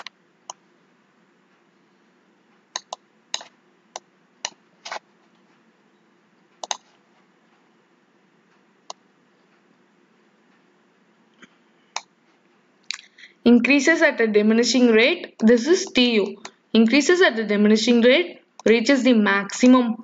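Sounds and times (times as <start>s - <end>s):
faint room hiss: 0.0s - 20.0s
computer mouse clicking: 2.8s - 5.5s, 6.6s - 7.0s.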